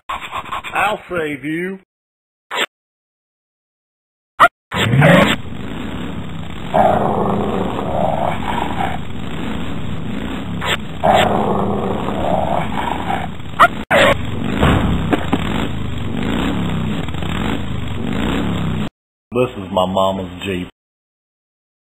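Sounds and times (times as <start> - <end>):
cartoon dog growling: 4.8 - 5.4, 6.7 - 9.0, 10.6 - 14.2
engine hum: 4.9 - 18.9.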